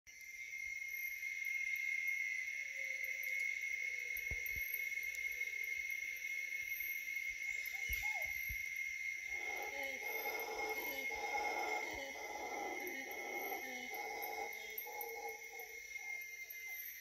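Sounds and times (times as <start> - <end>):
insects buzzing: 0.1 - 17.0
faint low calls: 9.3 - 16.2.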